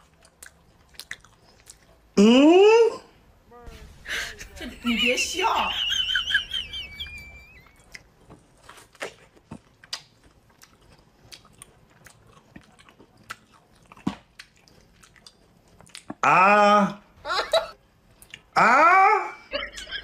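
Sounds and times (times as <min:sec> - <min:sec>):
crisp fruit being chewed: 0:00.0 - 0:02.2, 0:07.6 - 0:16.2.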